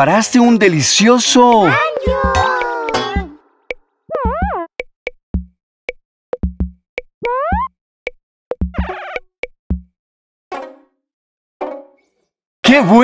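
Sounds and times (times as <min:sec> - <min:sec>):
playful cartoon music: 0:01.4 - 0:07.7, 0:08.5 - 0:09.9, 0:10.5 - 0:11.0, 0:11.6 - 0:12.2.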